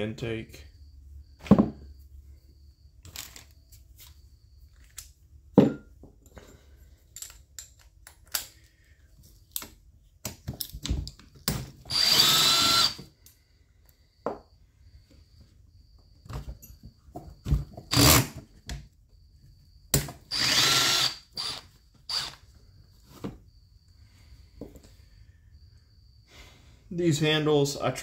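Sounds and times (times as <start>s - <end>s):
tools clicking and knocking: 4.8s - 8.6s, 9.5s - 11.9s
electric drill-driver whirring: 11.9s - 13.1s, 17.9s - 18.3s, 20.3s - 22.4s.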